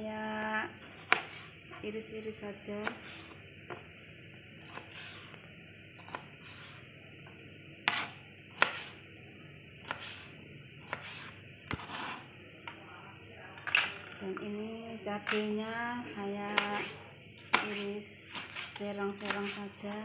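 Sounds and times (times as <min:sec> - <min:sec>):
knife slicing tomato: 0:00.9 - 0:01.6, 0:02.8 - 0:03.4, 0:04.6 - 0:05.4, 0:06.0 - 0:06.8, 0:07.8 - 0:09.0, 0:09.8 - 0:12.3, 0:16.5 - 0:19.7
knife tapping cutting board: 0:16.5 - 0:18.6, 0:19.2 - 0:19.6.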